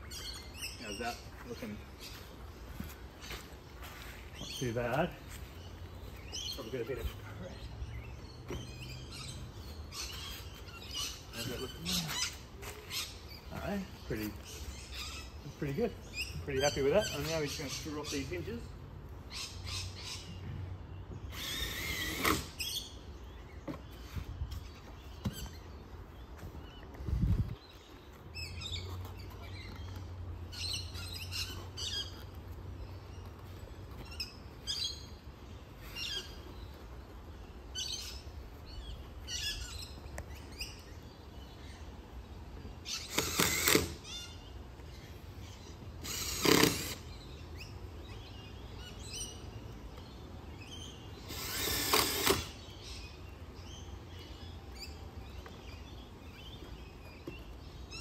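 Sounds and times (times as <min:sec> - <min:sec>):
birds chirping: 0:00.0 - 0:58.0
cordless drill driving screws: 0:21.3 - 0:22.6, 0:43.0 - 0:44.0, 0:46.0 - 0:47.0, 0:51.2 - 0:52.6.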